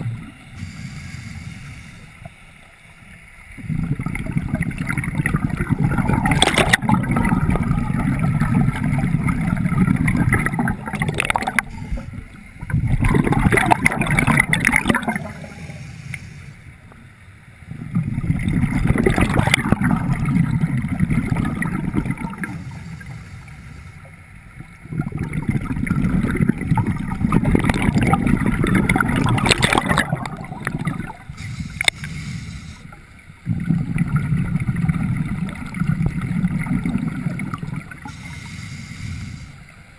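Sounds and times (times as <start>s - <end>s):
gurgling bubbles: 0.0s - 0.8s, 3.5s - 15.9s, 17.7s - 23.0s, 24.7s - 32.3s, 33.4s - 38.5s
diver breathing through regulator: 0.5s - 2.2s, 15.2s - 16.7s, 22.4s - 24.2s, 31.3s - 33.1s, 38.1s - 39.8s.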